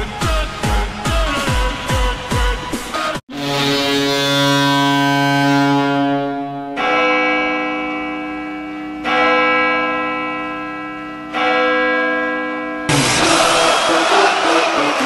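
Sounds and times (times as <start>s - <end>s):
arena music: 0.0s - 3.2s, 12.9s - 15.0s
goal horn multi-tone blasts: 2.9s - 7.6s
crowd noise: 12.9s - 15.0s.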